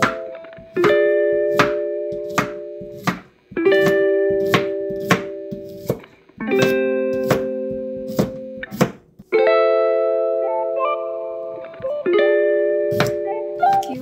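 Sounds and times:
plucked string music: 0.0 - 3.0, 3.6 - 14.0
knife chopping on cutting board: 0.0 - 6.0, 6.6 - 9.0, 12.9 - 13.2.

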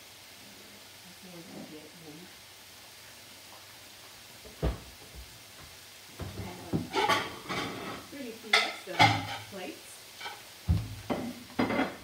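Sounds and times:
meat sizzling in a skillet: 0.0 - 12.0
knock: 4.5 - 4.9
cookware scraping and clattering: 6.7 - 9.6, 11.1 - 12.0.

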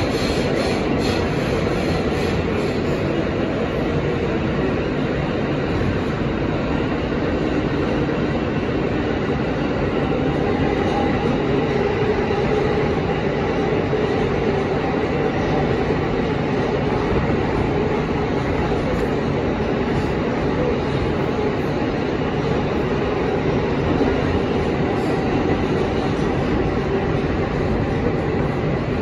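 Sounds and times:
rumble of wheels on rails: 0.0 - 29.0.

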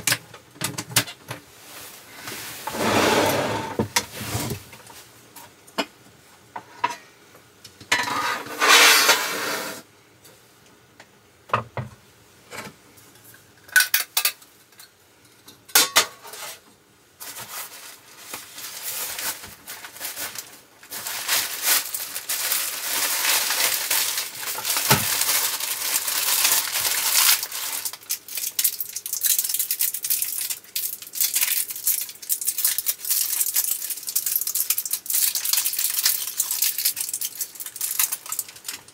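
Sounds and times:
rustling: 17.2 - 28.0.

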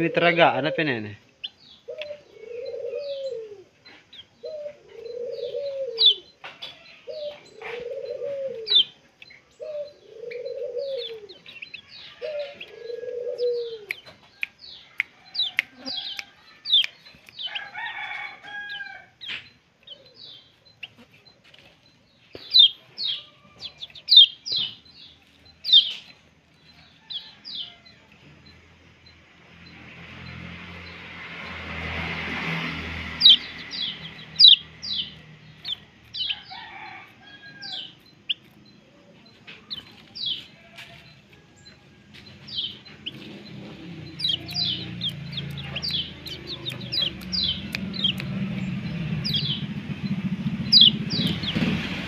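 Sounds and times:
lower arched bird call: 0.0 - 21.3, 29.6 - 38.4, 42.4 - 52.0
high falling bird chirps: 0.0 - 52.0.

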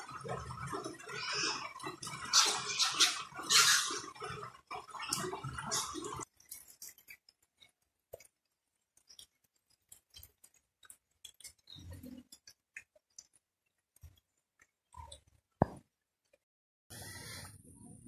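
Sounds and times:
pigs chewing in mud: 0.0 - 15.6.

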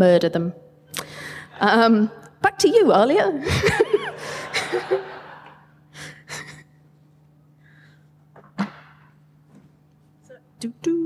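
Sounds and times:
low steady hum: 0.0 - 11.0
breathy noise on a microphone: 5.9 - 10.6.

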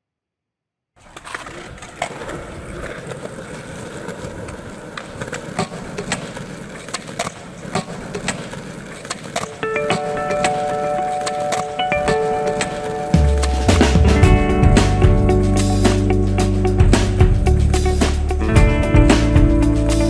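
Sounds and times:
skateboard clacks on floor: 1.0 - 14.1
skateboard wheels rolling: 1.0 - 20.0
music: 9.6 - 20.0.

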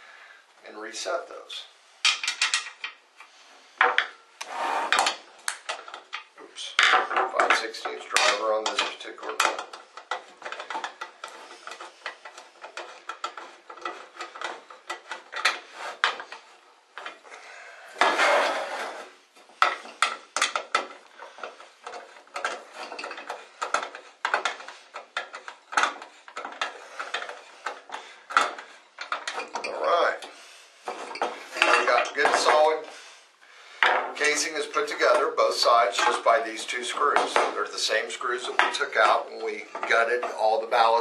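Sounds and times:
small metallic clicks and clatters: 2.0 - 4.2, 4.9 - 17.3, 19.4 - 32.9
scraping rustle: 4.4 - 33.4.

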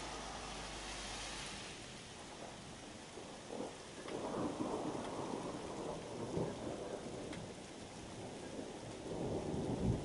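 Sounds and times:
steady rain: 0.0 - 10.0
thunder rumbling: 0.0 - 10.0
raindrop ticks: 2.2 - 10.0.

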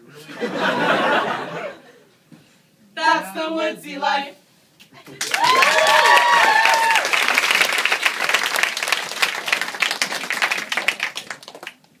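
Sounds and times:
cheering whoops: 5.2 - 7.4
audience applauding: 5.2 - 12.0.

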